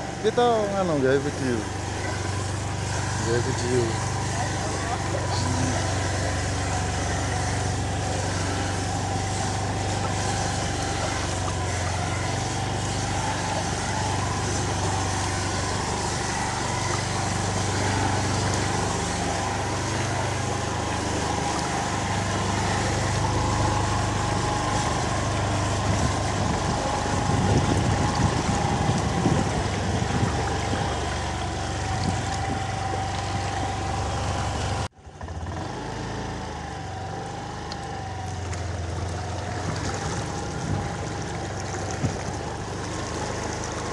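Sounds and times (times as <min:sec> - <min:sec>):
rushing water and wind: 0:00.0 - 0:34.9, 0:36.7 - 0:43.9
motorbike engine running: 0:00.0 - 0:43.9.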